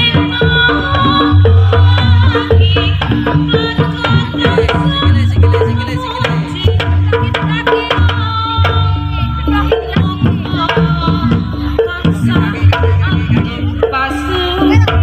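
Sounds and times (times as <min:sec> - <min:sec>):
hand drums driving rhythm: 0:00.0 - 0:15.0
low drum beats: 0:00.0 - 0:15.0.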